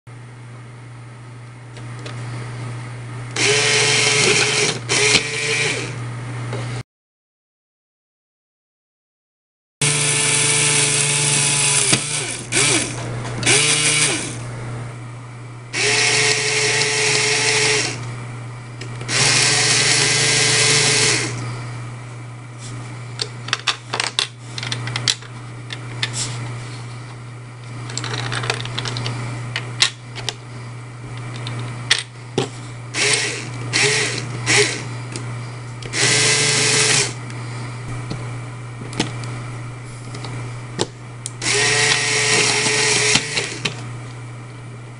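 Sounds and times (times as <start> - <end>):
electric motor humming: 3.2 - 6.1, 9.8 - 15.0, 15.7 - 18.2, 18.8 - 22.0, 32.9 - 44.2
high whirring: 3.3 - 6.0, 9.8 - 14.8, 15.7 - 18.1, 19.0 - 21.8, 32.9 - 35.2, 35.8 - 37.4, 41.2 - 43.9.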